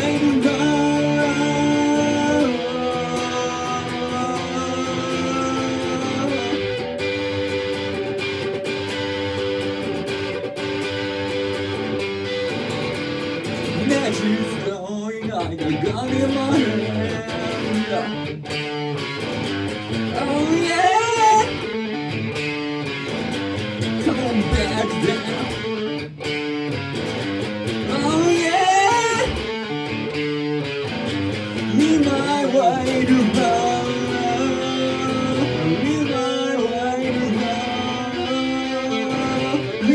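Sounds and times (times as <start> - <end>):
man singing: 0.0 - 7.3, 13.7 - 18.4, 20.0 - 22.1, 23.8 - 26.0, 27.8 - 29.8, 31.3 - 39.9
electric guitar through amplifier: 0.0 - 39.9.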